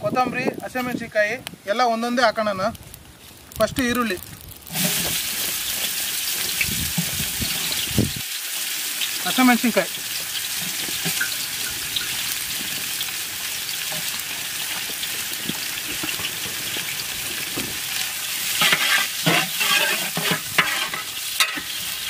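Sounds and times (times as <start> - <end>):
onions sizzling in hot oil: 3.2 - 22.0
metal spatula scraping pot: 18.5 - 21.8.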